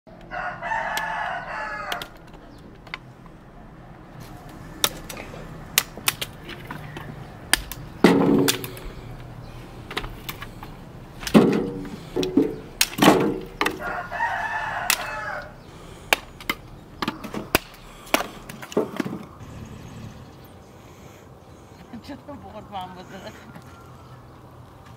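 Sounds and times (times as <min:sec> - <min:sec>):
rooster crowing: 0:00.2 - 0:02.3, 0:13.6 - 0:16.0
dry sticks snapping: 0:00.2 - 0:03.4, 0:04.2 - 0:19.4.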